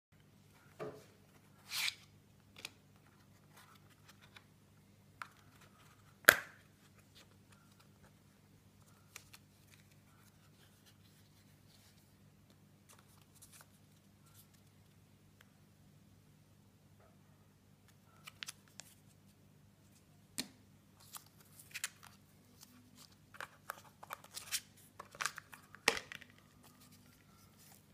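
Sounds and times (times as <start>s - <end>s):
faint steady hum: 0.2s - 27.9s.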